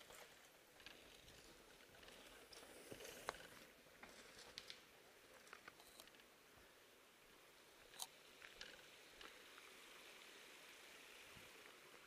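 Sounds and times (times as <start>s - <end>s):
faint hiss: 0.0s - 12.0s.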